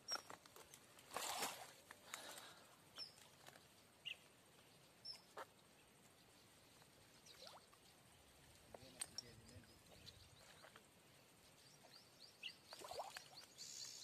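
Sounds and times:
fishing net clicks and rustles: 0.0s - 2.6s.

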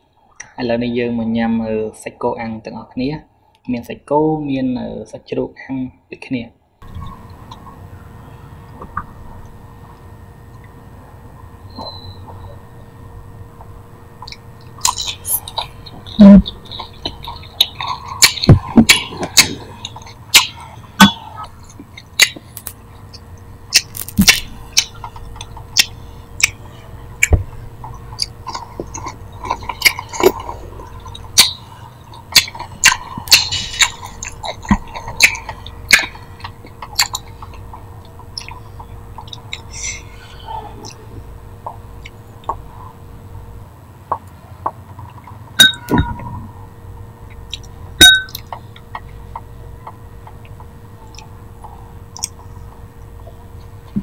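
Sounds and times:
person eating crunchy food: 13.6s - 43.0s
wet mouth clicks: 14.2s - 42.7s, 47.3s - 52.6s.

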